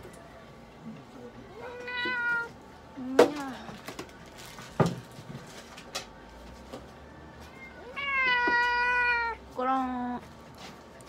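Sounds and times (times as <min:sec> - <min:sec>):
cat meowing: 0:01.5 - 0:02.6, 0:07.5 - 0:09.4.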